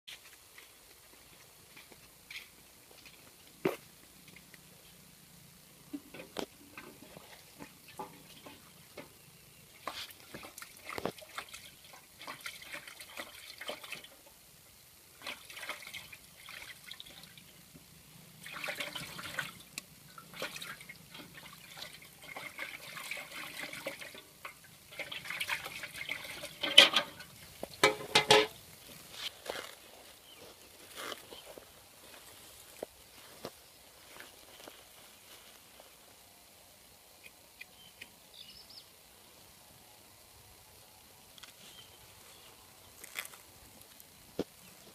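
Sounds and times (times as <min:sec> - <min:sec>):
water sloshing in a basin: 0:05.9 - 0:14.4, 0:15.1 - 0:17.5, 0:18.3 - 0:28.6.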